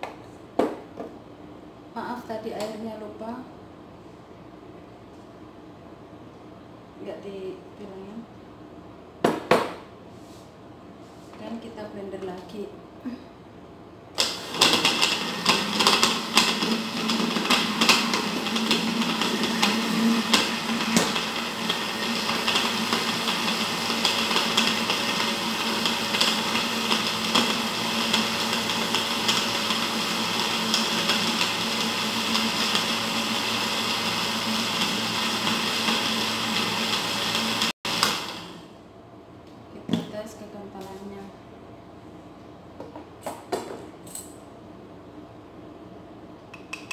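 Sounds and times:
electric blender running: 14.2 - 38.7.

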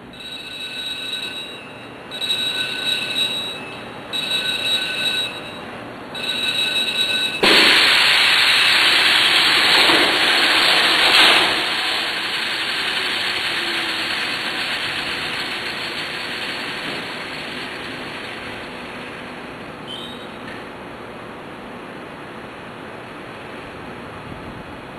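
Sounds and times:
loud rushing hiss: 7.4 - 19.6.

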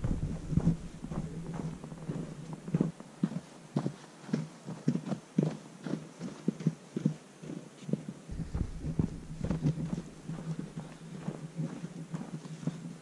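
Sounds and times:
faint low hum: 0.0 - 3.4, 8.3 - 13.0
footsteps on snow: 0.0 - 5.0, 8.3 - 13.0.

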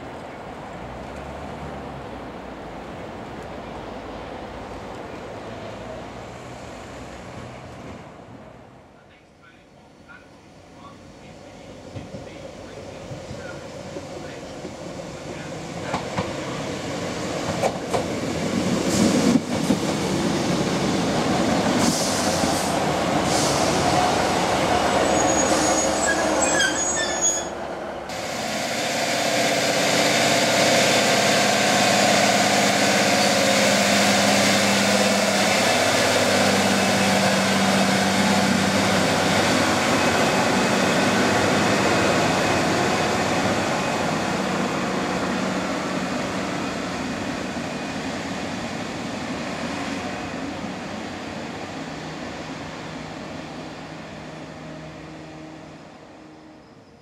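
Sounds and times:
brakes squealing high: 24.8 - 27.6.

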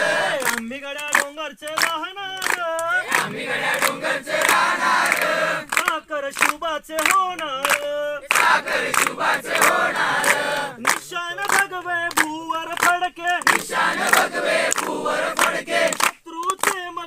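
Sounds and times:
group singing in response: 0.0 - 0.7, 2.4 - 6.0, 7.7 - 11.6, 13.4 - 16.1
rhythmic hand clapping: 0.0 - 17.0.

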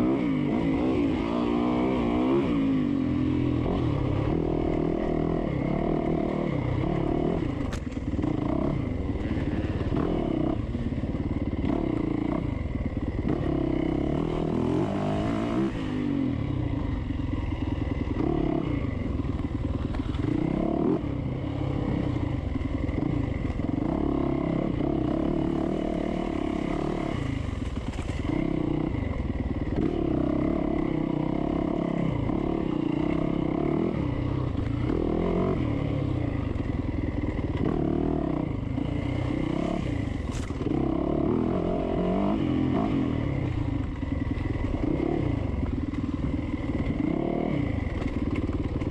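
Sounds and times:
dirt bike engine revving: 0.0 - 7.6, 8.2 - 10.8, 13.2 - 16.3, 22.9 - 36.4, 37.3 - 43.6, 44.4 - 48.9.

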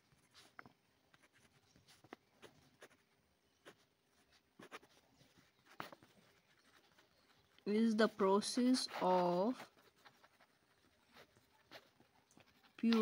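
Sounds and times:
pen scratching on paper: 0.1 - 3.0, 3.6 - 13.0.

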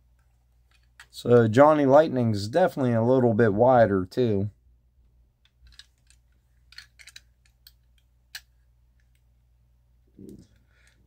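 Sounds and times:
toy van clicks and taps: 5.6 - 8.5.

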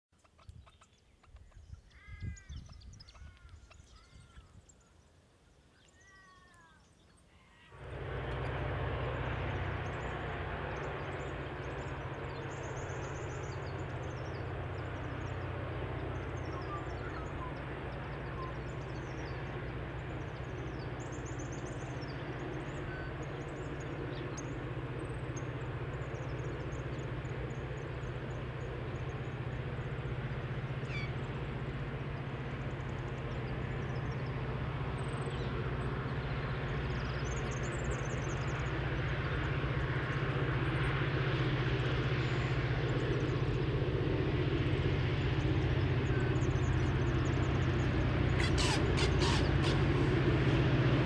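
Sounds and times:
birds chirping: 0.2 - 51.0
diesel locomotives rumbling: 7.5 - 51.0.

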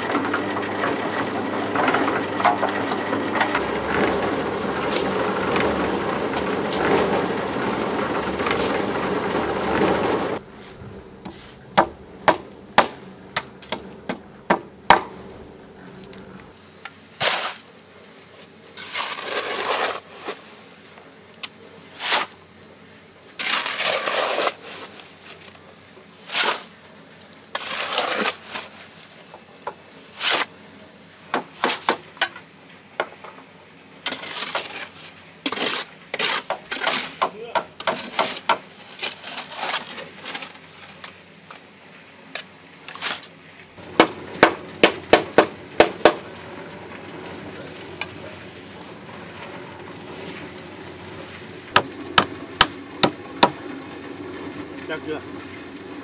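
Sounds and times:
loud steady rattling: 0.8 - 10.4.

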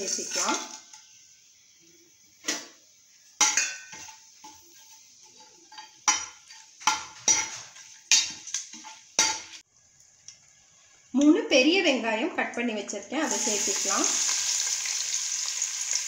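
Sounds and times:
oil sizzling: 0.0 - 11.4, 13.2 - 16.0
metal spoon clanking in pot: 3.4 - 4.6, 5.3 - 9.6.

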